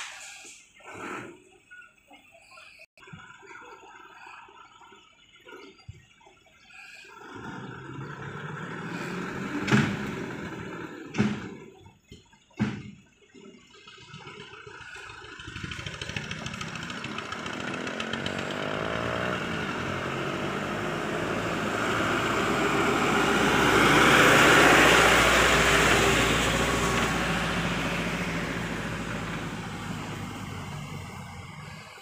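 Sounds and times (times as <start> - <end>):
dump truck driving past: 7.3 - 11.8, 14.2 - 32.0.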